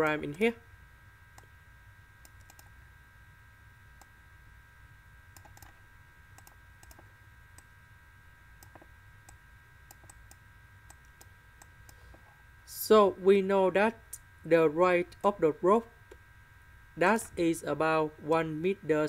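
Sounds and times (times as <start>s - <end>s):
low electrical hum: 0.0s - 19.0s
computer mouse clicks: 2.2s - 2.7s, 5.3s - 5.8s, 6.4s - 7.7s, 8.6s - 12.3s.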